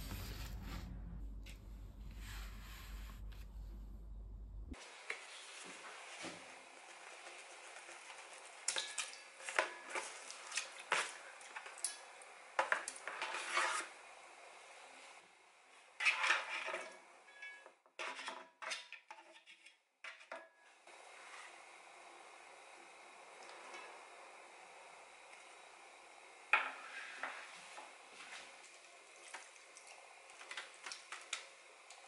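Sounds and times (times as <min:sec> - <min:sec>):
rustling and scraping on board: 0:12.6 - 0:13.9.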